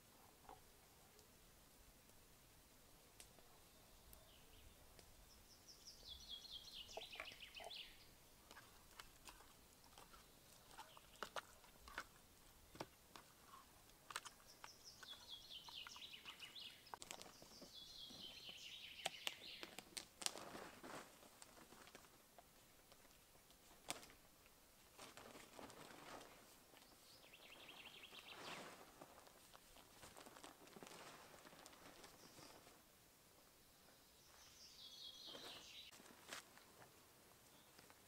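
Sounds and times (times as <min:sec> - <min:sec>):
songbird singing: 0:03.2 - 0:19.8, 0:26.7 - 0:28.9, 0:31.6 - 0:32.8, 0:33.4 - 0:36.0
short rustle: 0:20.2 - 0:22.2, 0:24.9 - 0:32.8.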